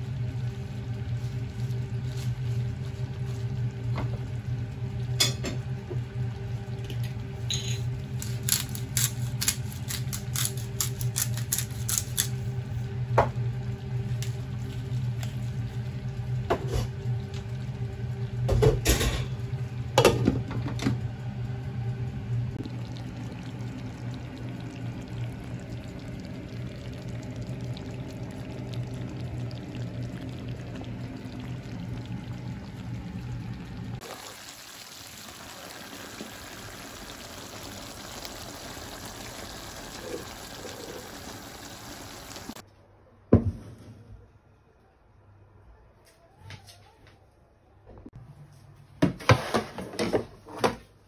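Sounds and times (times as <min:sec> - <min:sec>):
low hum: 0:09.4 - 0:34.1
sizzling in frying pan: 0:21.0 - 0:42.6.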